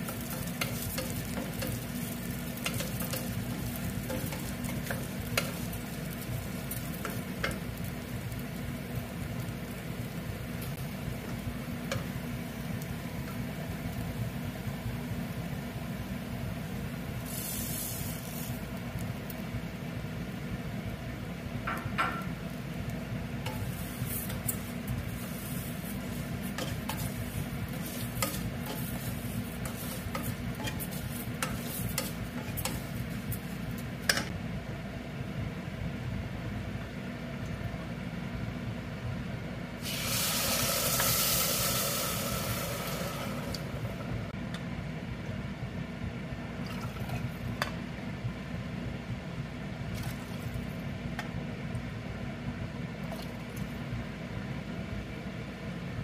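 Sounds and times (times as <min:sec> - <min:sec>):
water sizzling in hot pan: 0:00.0 - 0:15.9, 0:16.9 - 0:19.4, 0:22.6 - 0:34.2, 0:39.8 - 0:44.3
wooden spatula scraping a pot: 0:23.5 - 0:33.5.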